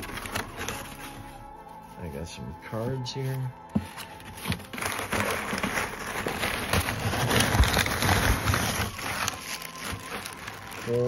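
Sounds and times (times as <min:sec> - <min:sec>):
paper and plastic wrap rustling: 0:00.0 - 0:11.0.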